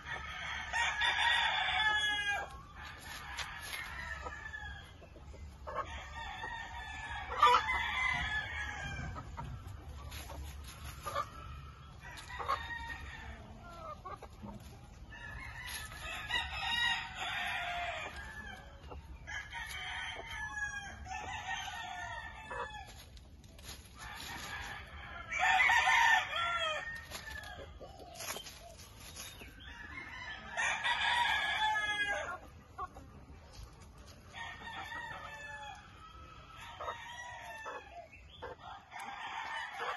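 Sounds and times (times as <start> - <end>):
roosters crowing: 0.0 - 5.0, 5.6 - 32.9, 34.2 - 39.9
chickens clucking: 0.0 - 39.9.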